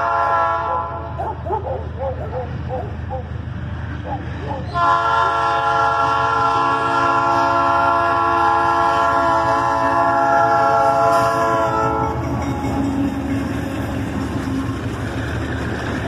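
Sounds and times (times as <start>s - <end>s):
locomotive air horn blast: 0.0s - 1.2s, 4.7s - 12.2s
locomotive rumble: 0.0s - 16.0s.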